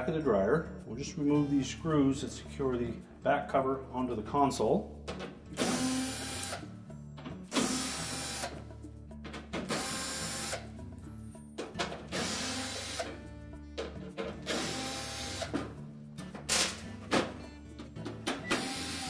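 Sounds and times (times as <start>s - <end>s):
cordless drill running: 5.6s - 6.6s, 7.6s - 8.5s, 9.7s - 10.6s, 12.1s - 13.1s, 14.5s - 15.5s, 18.6s - 19.0s.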